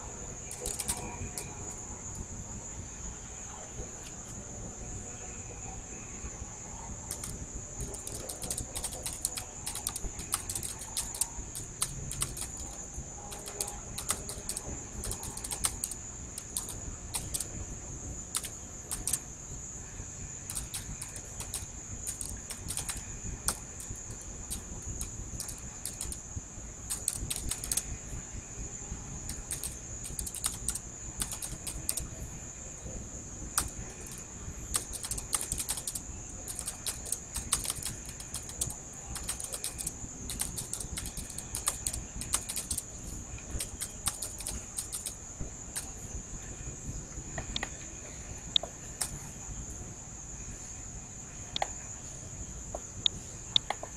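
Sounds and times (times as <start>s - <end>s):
steady high-pitched whine: 0.0s - 53.9s
typing on computer keyboard: 0.4s - 1.7s, 7.1s - 17.6s, 18.3s - 19.2s, 20.4s - 28.0s, 29.3s - 32.2s, 33.5s - 45.9s.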